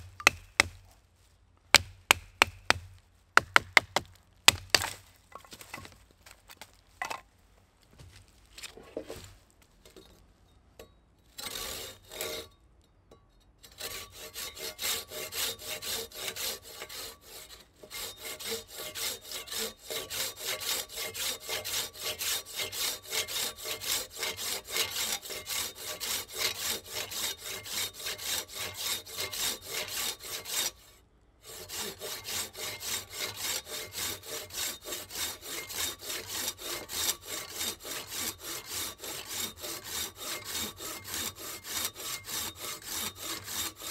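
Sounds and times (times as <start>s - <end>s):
folding saw cutting log: 11.3s - 12.5s, 13.6s - 43.9s.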